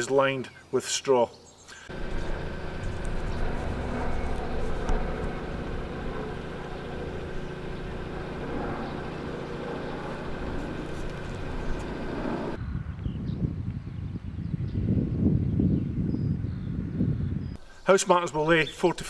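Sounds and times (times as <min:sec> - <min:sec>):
outdoor background noise: 0:00.0 - 0:13.9
steady mechanical hum: 0:01.9 - 0:12.6.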